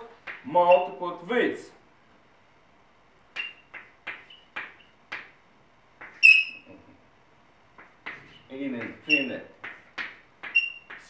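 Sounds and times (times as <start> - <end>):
chalk tapping and stroking blackboard: 0.0 - 0.9, 3.3 - 5.4, 6.0 - 6.6, 7.7 - 11.0
high-pitched chalk squeak: 3.4 - 4.5, 6.0 - 6.7, 9.0 - 9.8, 10.4 - 11.0.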